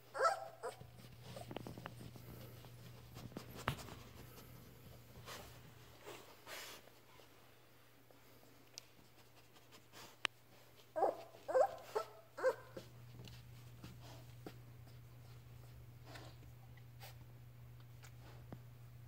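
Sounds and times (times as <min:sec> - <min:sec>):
puppy whimpering squeaks: 0:00.2 - 0:01.5.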